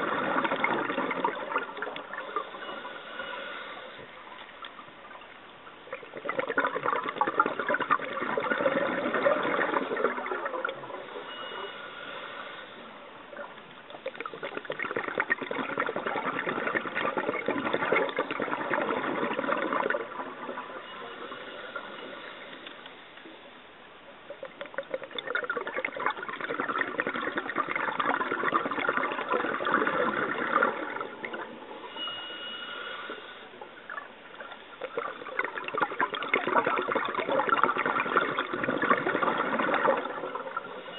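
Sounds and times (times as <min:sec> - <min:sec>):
bubbly regulator exhalations: 0:00.0 - 0:04.2, 0:05.9 - 0:11.8, 0:13.4 - 0:22.5, 0:24.4 - 0:40.9
in-breaths with faint whistle: 0:00.4 - 0:04.5, 0:08.4 - 0:13.6, 0:20.5 - 0:23.5, 0:29.2 - 0:34.1, 0:39.4 - 0:40.9.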